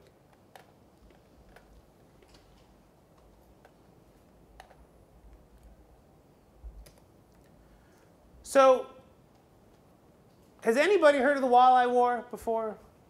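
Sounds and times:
keyboard and mouse clicks: 0.0s - 3.8s, 4.6s - 5.8s, 6.7s - 7.6s.

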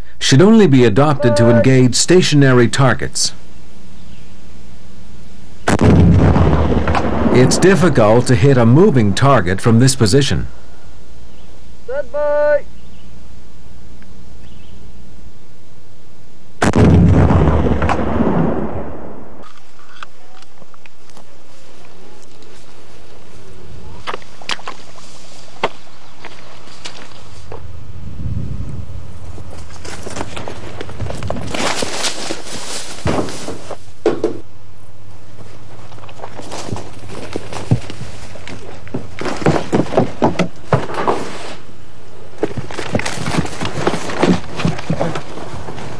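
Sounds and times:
steady low hum: 0.0s - 45.9s
rocket launcher blast: 5.7s - 9.7s, 16.6s - 19.4s
grass rustling: 19.5s - 34.0s, 35.0s - 45.9s
footfalls in tall grass: 29.3s - 33.9s.

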